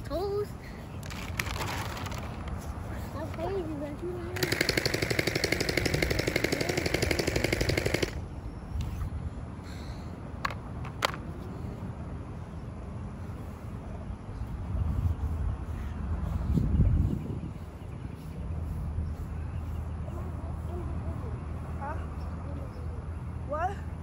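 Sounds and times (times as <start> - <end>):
sharp clicks: 4.4 - 8.2.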